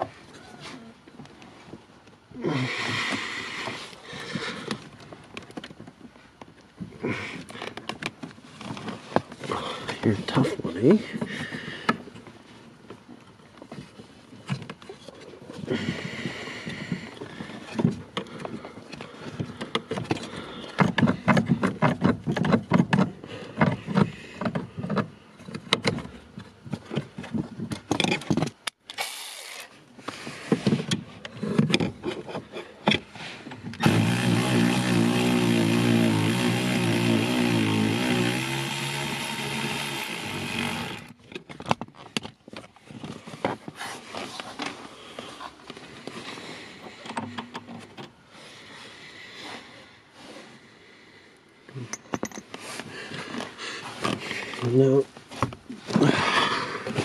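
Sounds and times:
cordless power tool running: 33.8s - 41.2s.

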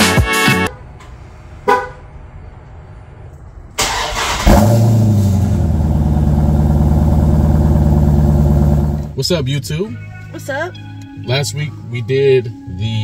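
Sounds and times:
car horn chirp: 1.6s - 2.1s
car engine revving and idling: 4.1s - 9.2s.

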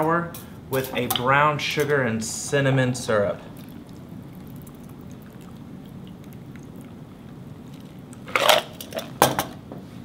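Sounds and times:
cocktail pouring through strainer: 3.5s - 9.2s.

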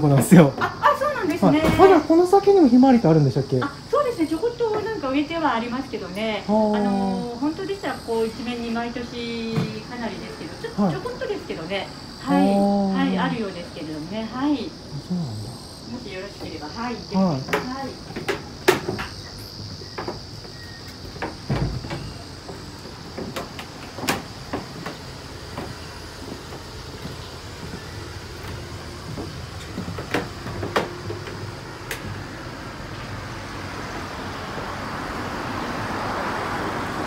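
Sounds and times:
high insect buzz: 0.0s - 37.0s
road traffic: 0.0s - 37.0s
footfalls on wooden deck: 17.2s - 34.8s.

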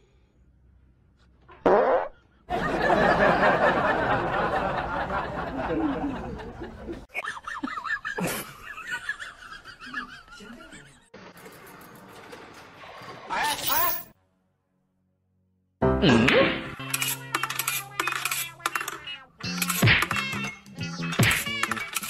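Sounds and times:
person laughing: 5.3s - 11.1s.

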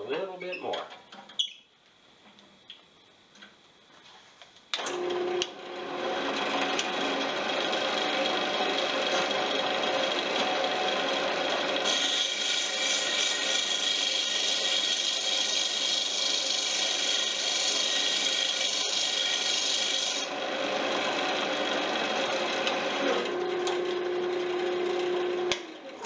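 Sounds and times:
wood lathe humming: 4.8s - 26.0s
sandpaper rasping on spinning wood: 11.8s - 20.3s.

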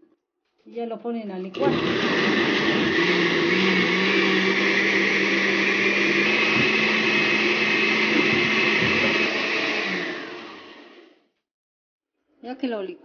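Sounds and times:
blender motor humming: 1.6s - 11.2s.

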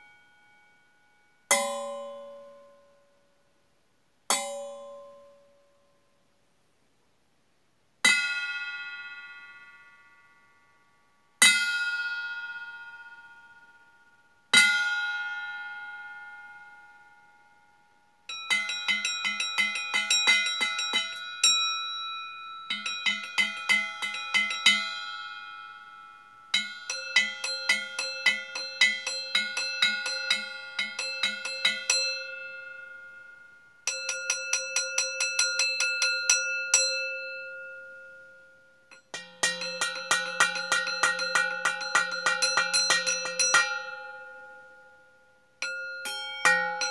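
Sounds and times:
steel bowls ringing when struck: 18.3s - 46.9s.

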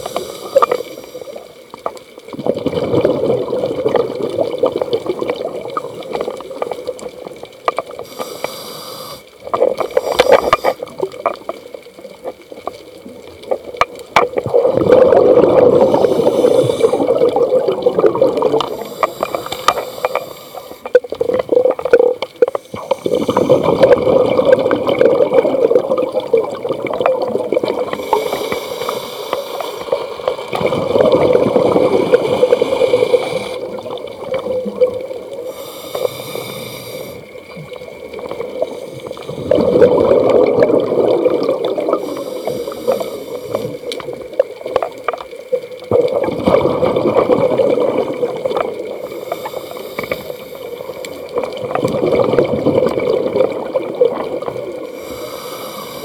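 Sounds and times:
regulator inhale hiss: 0.0s - 1.6s, 8.0s - 10.9s, 15.8s - 17.1s, 18.6s - 21.0s, 22.5s - 23.8s, 27.9s - 30.0s, 32.2s - 33.7s, 35.4s - 37.4s, 38.6s - 39.5s, 41.9s - 44.0s, 49.0s - 51.3s, 54.9s - 56.0s
exhaled bubbles gurgling: 0.0s - 56.0s.

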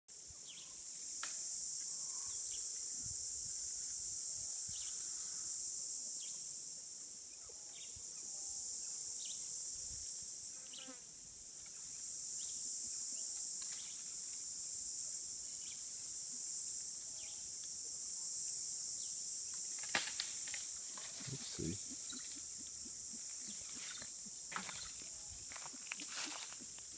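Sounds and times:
faint insect chirps: 0.1s - 26.9s
insect chorus drone: 0.1s - 26.9s.

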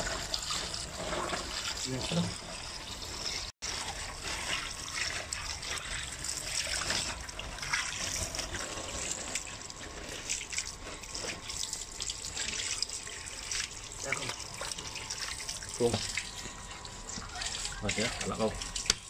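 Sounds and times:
hose water splashing on tiles: 0.0s - 19.0s.

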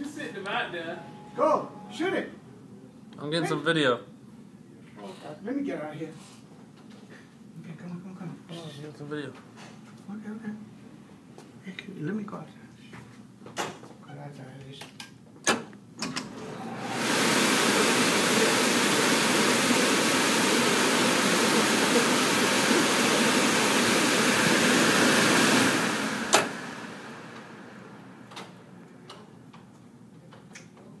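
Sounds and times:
leaf blower rushing air: 16.4s - 28.3s.

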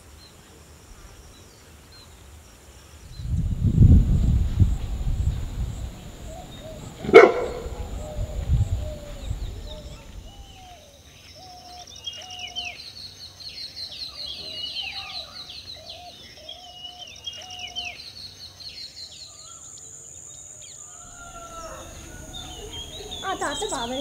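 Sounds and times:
low whistled bird call: 3.1s - 10.8s
bird chirps and trills: 21.2s - 24.0s.

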